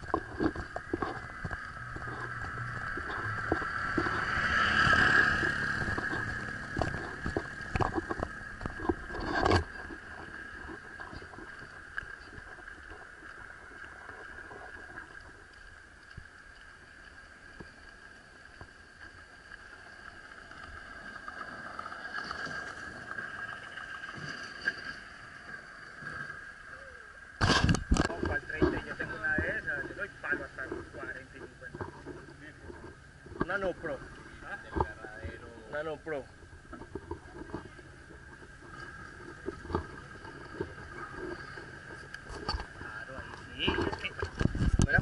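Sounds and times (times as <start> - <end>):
wind rumble on microphone: 0.0 - 12.5, 36.5 - 45.0.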